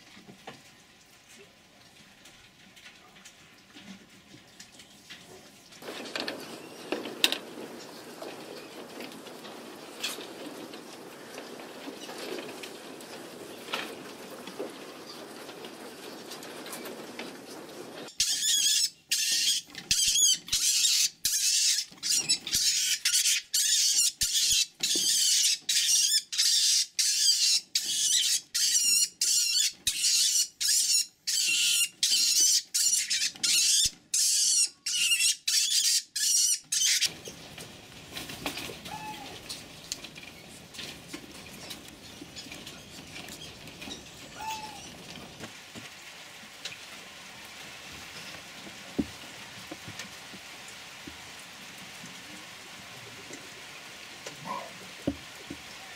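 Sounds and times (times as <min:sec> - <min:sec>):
mink screeching: 0:18.1 - 0:37.1, 0:38.9 - 0:39.4, 0:44.3 - 0:44.9.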